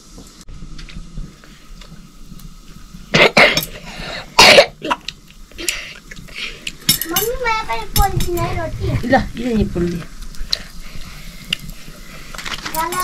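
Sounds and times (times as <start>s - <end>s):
person coughing: 4.4s - 5.0s.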